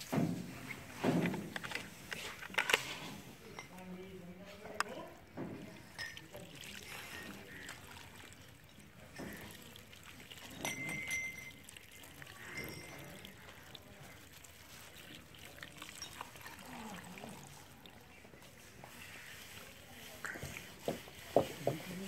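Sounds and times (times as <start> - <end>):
hose water splashing on grass: 5.3 - 22.0.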